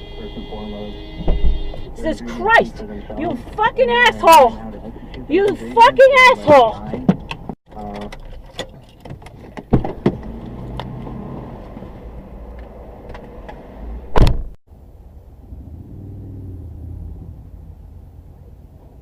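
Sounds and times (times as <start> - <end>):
car door thump: 14.1 - 14.6.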